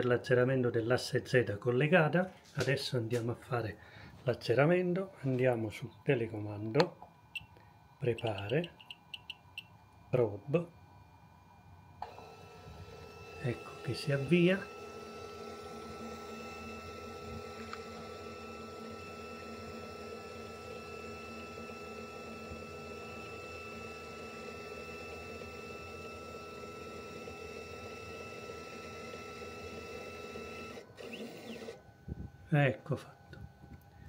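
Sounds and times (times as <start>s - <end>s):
stepper motor whining: 12.0s - 32.3s.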